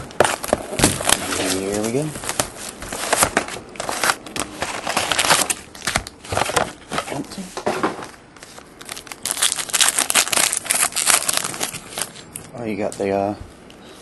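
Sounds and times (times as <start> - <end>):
plastic wrapping crinkling: 0.0 - 7.3, 8.4 - 12.6
card pack wrapper tearing: 8.8 - 12.3.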